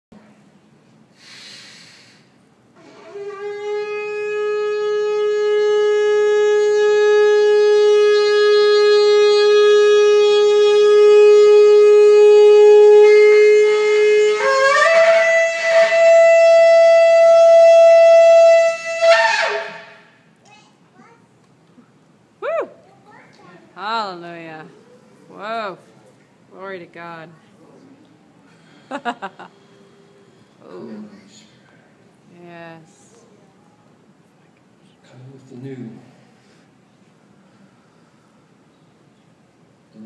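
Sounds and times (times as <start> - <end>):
shofar blast: 2.8 - 20.2.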